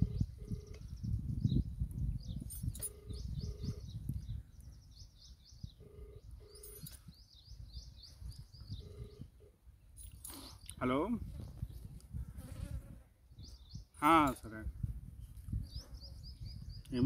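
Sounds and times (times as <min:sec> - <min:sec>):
telephone ringback double beep: 0:00.0 - 0:00.8, 0:02.8 - 0:04.0, 0:05.8 - 0:07.0, 0:08.7 - 0:09.5
small birds chirping: 0:00.0 - 0:12.7, 0:13.3 - 0:17.0.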